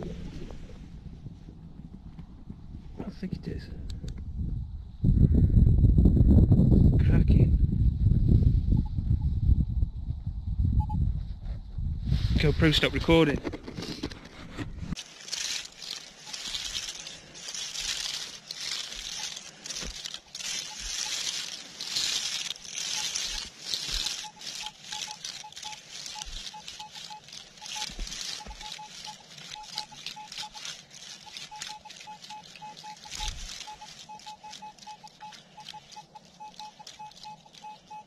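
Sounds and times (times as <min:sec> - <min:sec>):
metal detector high beeps: 0:10.8 - 0:11.0, 0:16.2 - 0:38.0
swishing through grass: 0:14.9 - 0:38.0.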